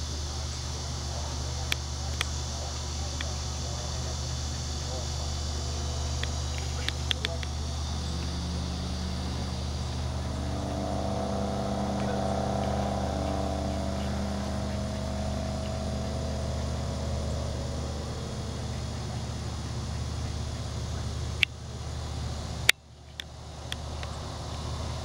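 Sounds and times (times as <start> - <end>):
distant motor engine hum: 0.0 - 25.0
steady low rumble: 0.0 - 25.0.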